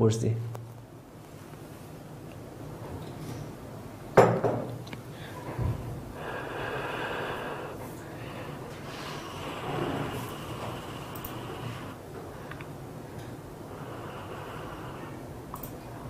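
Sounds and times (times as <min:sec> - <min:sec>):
breathy hiss: 0:05.1 - 0:15.7.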